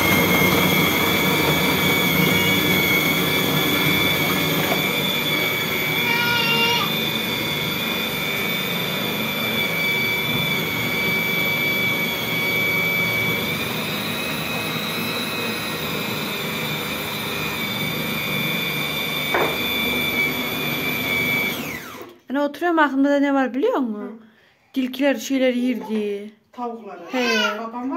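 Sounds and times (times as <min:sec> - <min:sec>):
food processor whining: 0:00.0 - 0:22.2.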